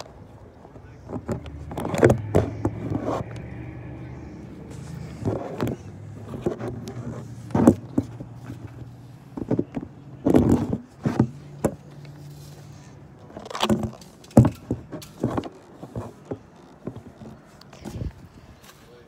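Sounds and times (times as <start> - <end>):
low hum: 1.0 - 8.9
phone handling knocks and rustles: 5.0 - 12.0.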